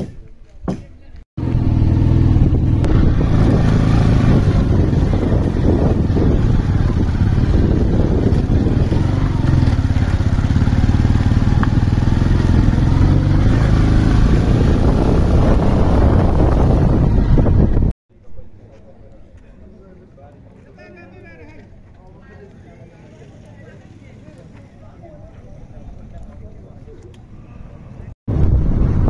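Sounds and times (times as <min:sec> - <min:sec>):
wind and road noise: 0:01.1 - 0:29.0
motorcycle engine running: 0:01.4 - 0:17.9.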